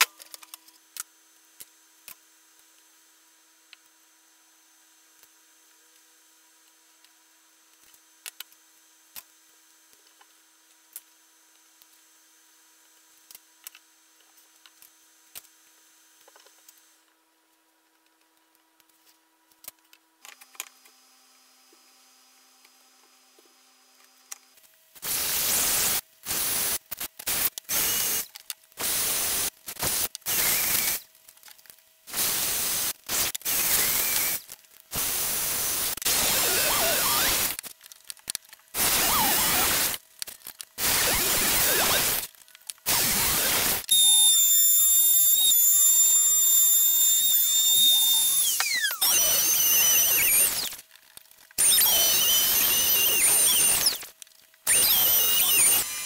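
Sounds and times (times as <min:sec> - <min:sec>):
power tool whirring bursts: 0:25.0 - 0:31.0, 0:32.1 - 0:37.6, 0:38.8 - 0:40.0, 0:40.8 - 0:42.3, 0:42.9 - 0:50.8, 0:51.6 - 0:56.0
high-pitched motor whine: 0:32.4 - 0:37.6, 0:38.8 - 0:40.0, 0:40.8 - 0:42.3, 0:42.9 - 0:50.8, 0:51.6 - 0:56.0.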